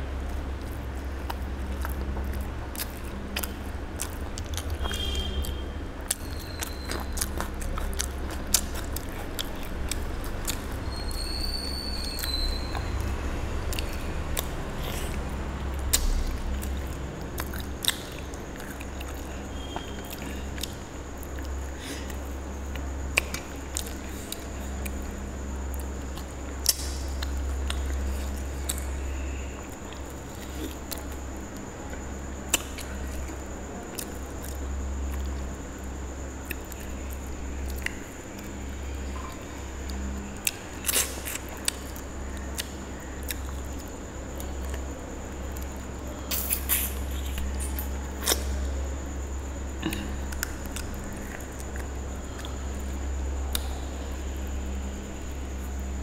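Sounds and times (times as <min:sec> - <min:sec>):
steady low hum: 0:00.0 - 0:56.0
chewing with wet mouth squishes: 0:00.3 - 0:48.9
sharp mouth clicks: 0:15.8 - 0:19.2, 0:26.1 - 0:28.9, 0:46.3 - 0:48.6
lip smacks: 0:15.9 - 0:16.8, 0:25.8 - 0:28.9, 0:46.3 - 0:48.6.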